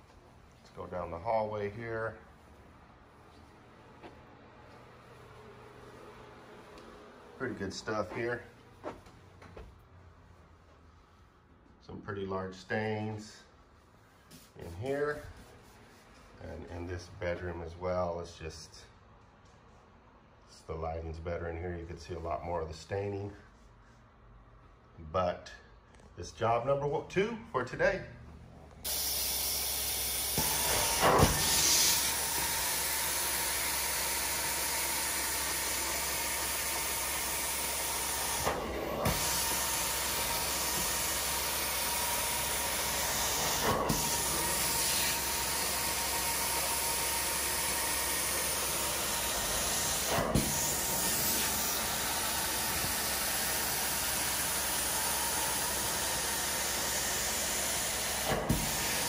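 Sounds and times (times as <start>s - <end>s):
carpet extraction wand hissing: 28.9s - 59.0s.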